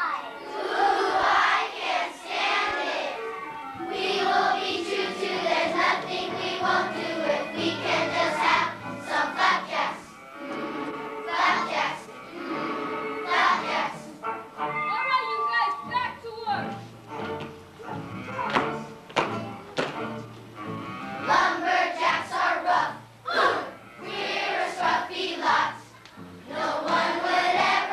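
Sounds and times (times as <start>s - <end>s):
children's choir singing: 0.0s - 14.8s, 21.1s - 27.9s
musical accompaniment: 0.0s - 27.9s.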